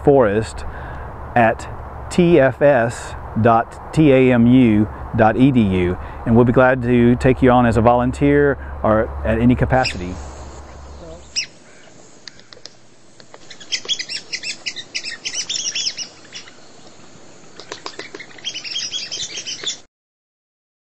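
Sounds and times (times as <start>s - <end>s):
bird chattering calls: 9.8s - 12.8s, 13.4s - 19.9s.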